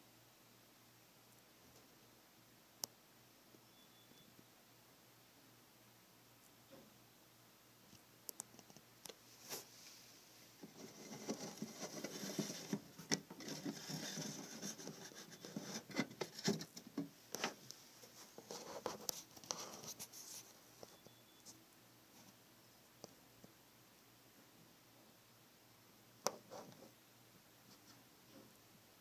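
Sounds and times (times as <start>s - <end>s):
sharp little clicks and taps: 7.9s - 9.2s
scratching and rustling: 8.5s - 21.6s.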